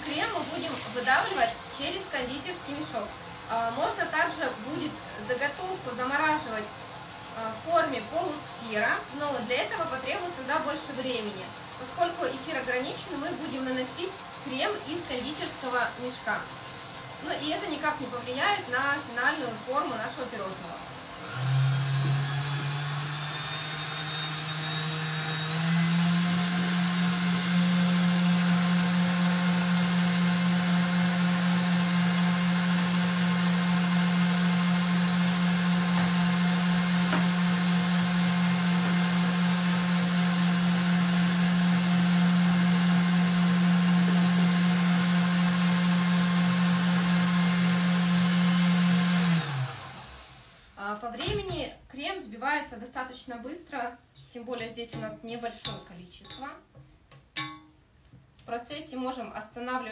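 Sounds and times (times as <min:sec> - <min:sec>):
stand mixer whisking: 0:21.2 - 0:50.5.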